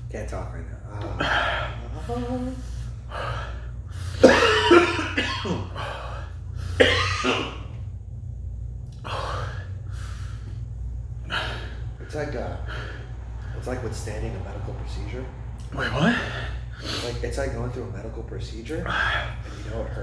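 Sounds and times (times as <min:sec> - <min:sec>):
man coughing hard: 0:04.1 - 0:06.0, 0:06.7 - 0:07.8
rough breaths: 0:09.0 - 0:13.6.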